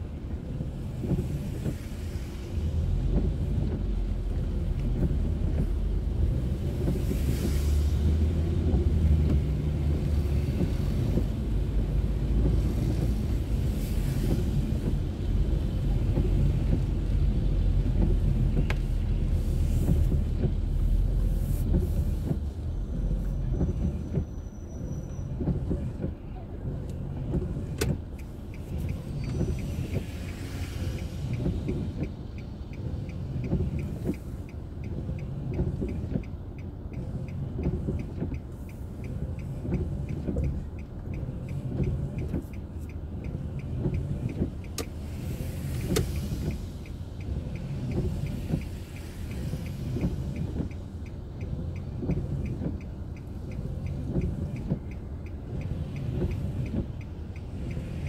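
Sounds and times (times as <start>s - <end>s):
engine and tyre rumble: 0.0s - 58.0s
faint regular ticking: 26.7s - 58.0s.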